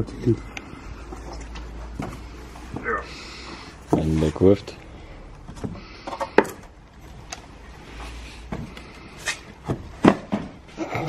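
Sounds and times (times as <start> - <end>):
knocks and clunks: 9.6 - 10.7.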